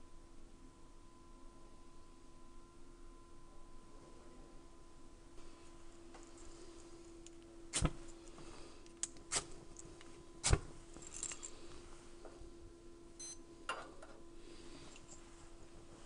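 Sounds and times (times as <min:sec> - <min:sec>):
electronic stopwatch beep: 0:13.2 - 0:13.4.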